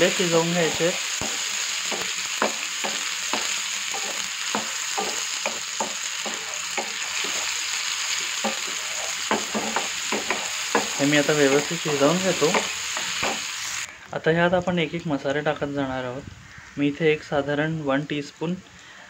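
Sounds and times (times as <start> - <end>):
vegetables sizzling in oil: 0.0 - 13.9
wooden spatula scraping a pan: 8.3 - 13.4.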